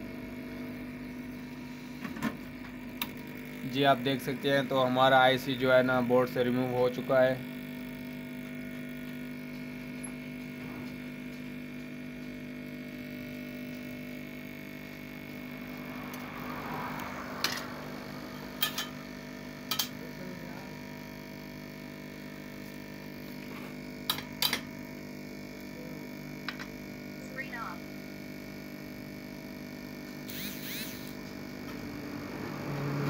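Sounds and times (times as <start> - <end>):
electrical hum: 0.0 - 33.0.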